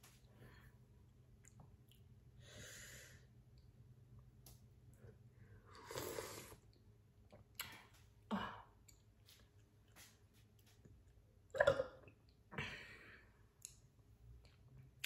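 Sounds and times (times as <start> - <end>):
slurping and chewing: 5.7 - 6.8.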